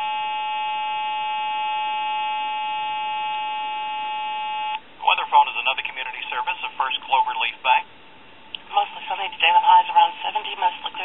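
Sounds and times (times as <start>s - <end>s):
buzzing tone over telephone: 0.0s - 4.8s
recorded announcement voice: 5.0s - 7.9s, 8.6s - 11.0s.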